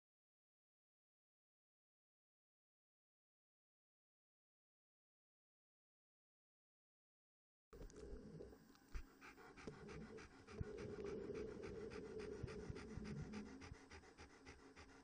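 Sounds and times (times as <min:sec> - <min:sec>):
dog panting: 0:08.9 - 0:15.0.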